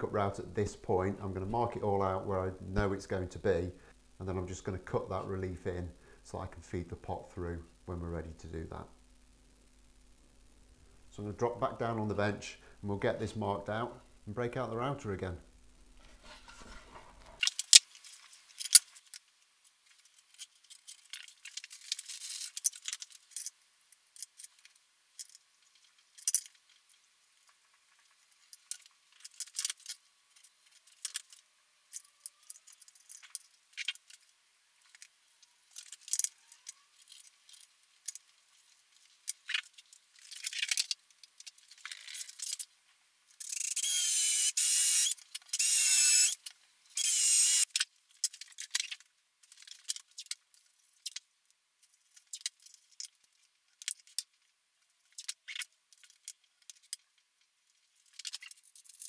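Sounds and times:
cordless drill boring into wood: 43.6s - 46.4s, 47.0s - 47.7s.

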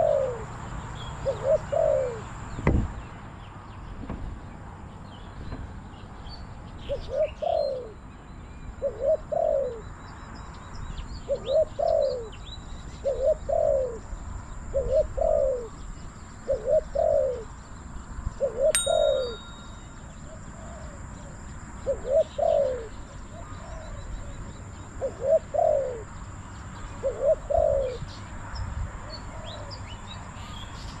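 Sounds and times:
dove cooing: 0.0s - 0.5s, 1.2s - 2.4s, 6.9s - 8.0s, 8.8s - 9.8s, 11.3s - 12.4s, 13.0s - 14.0s, 14.7s - 15.8s, 16.4s - 17.5s, 21.8s - 24.0s, 25.0s - 26.1s, 27.0s - 28.0s
small birds chirping: 0.0s - 31.0s.

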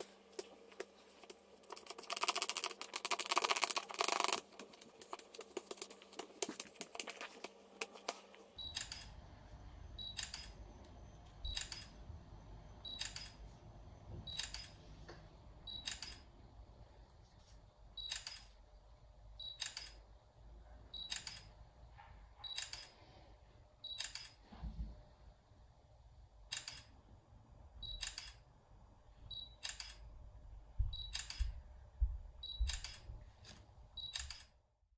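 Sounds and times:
charcoal scratching on paper: 0.0s - 8.5s.

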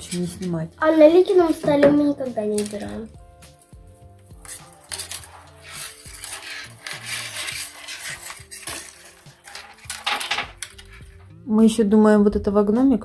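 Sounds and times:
small hard objects clinking: 1.5s - 11.3s.

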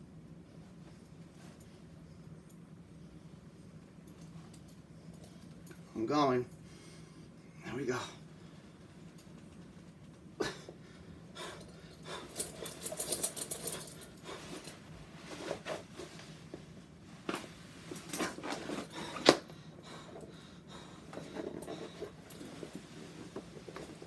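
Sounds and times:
hard panting breaths: 10.4s - 14.9s, 18.3s - 24.0s
metal buckles clinking: 11.6s - 14.7s.

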